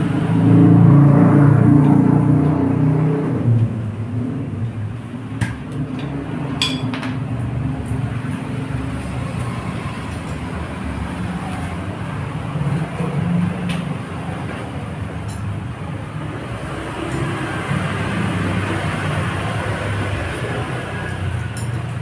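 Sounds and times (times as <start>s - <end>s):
hand tools clinking on metal: 6.6s - 7.2s.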